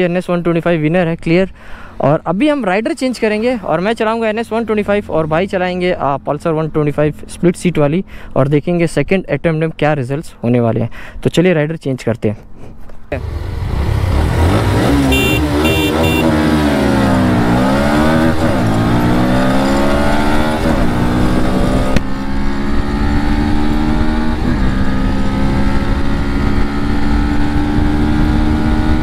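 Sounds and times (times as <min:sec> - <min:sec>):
motorcycle engine accelerating: 0:13.2 - 0:29.0.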